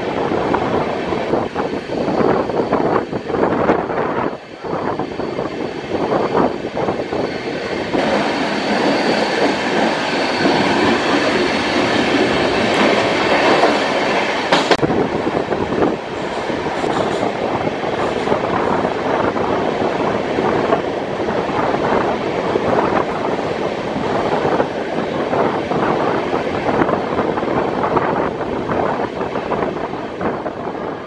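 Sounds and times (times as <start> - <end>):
rush of air: 0.0 - 31.0
high squeal of wheels: 7.0 - 11.8
train wheels clattering over rail joints: 8.0 - 14.8, 16.2 - 17.4.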